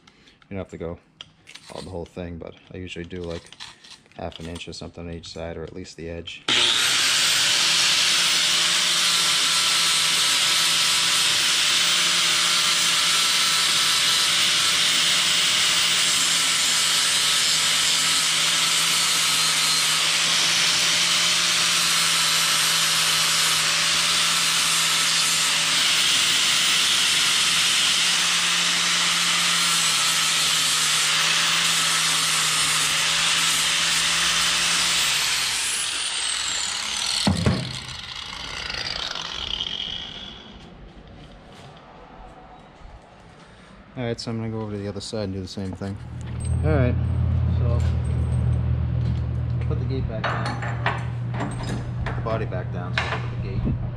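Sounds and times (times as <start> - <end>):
angle grinder whining: 6.5 - 40.8.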